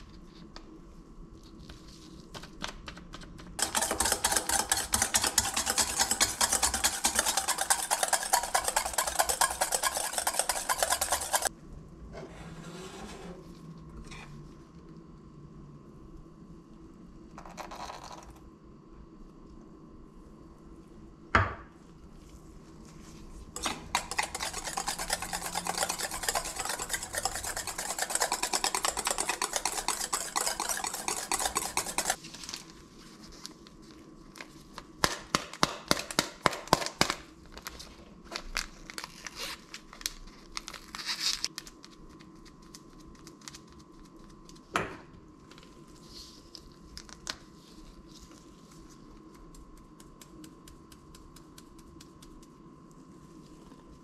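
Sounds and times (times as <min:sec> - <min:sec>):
whisk beating eggs in a bowl: 0:03.6 - 0:11.5, 0:23.6 - 0:32.2, 0:49.4 - 0:52.6.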